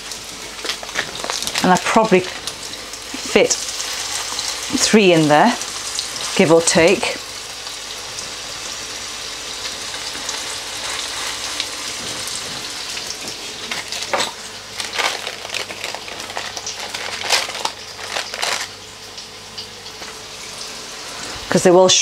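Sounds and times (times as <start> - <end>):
oil crackling and spitting: 0.0 - 4.9, 9.6 - 20.2
patties sizzling in hot oil: 0.0 - 22.0.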